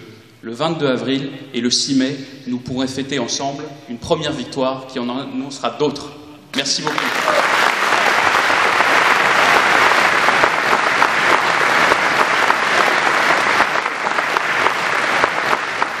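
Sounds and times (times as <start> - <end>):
audience applauding: 6.6 - 16.0.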